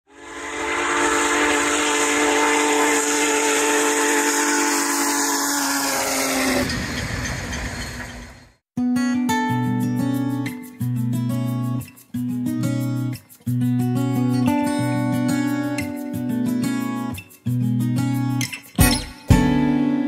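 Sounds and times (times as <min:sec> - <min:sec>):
locomotive air horn chord: 0:00.1 - 0:06.5.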